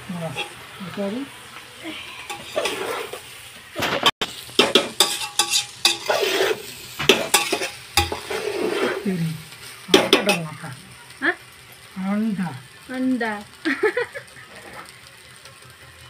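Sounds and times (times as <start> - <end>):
light sizzle: 0.0 - 16.0
metal spatula scraping a pot: 2.1 - 3.3, 4.0 - 9.2.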